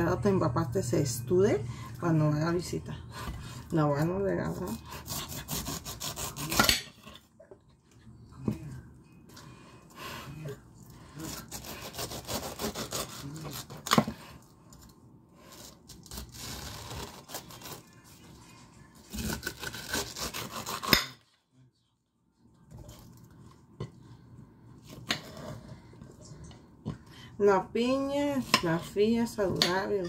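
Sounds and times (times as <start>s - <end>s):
knife sawing through pineapple: 4.5s - 6.8s, 11.2s - 13.9s, 15.5s - 17.8s, 19.1s - 21.2s.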